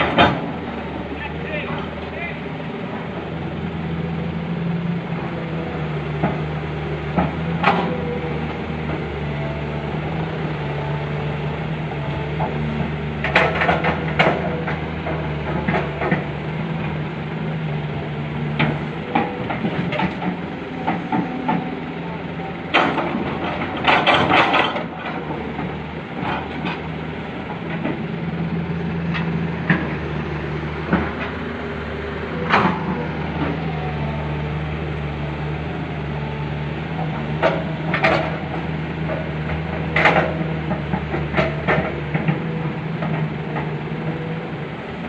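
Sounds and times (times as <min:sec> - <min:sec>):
excavator diesel engine: 0:00.0 - 0:45.0
knocks and clatter: 0:13.2 - 0:16.3, 0:18.5 - 0:21.7, 0:22.7 - 0:26.8, 0:37.4 - 0:43.7.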